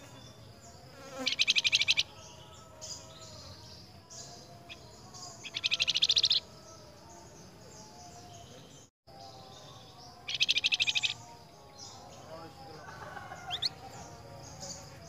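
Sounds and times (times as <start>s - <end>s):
songbird buzzy rattling trills: 0.0s - 7.0s, 10.1s - 15.0s.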